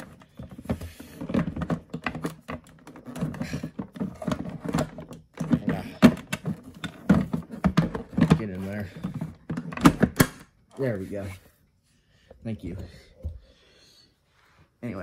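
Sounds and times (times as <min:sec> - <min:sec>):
plastic clicks and rattles: 0:00.0 - 0:08.4.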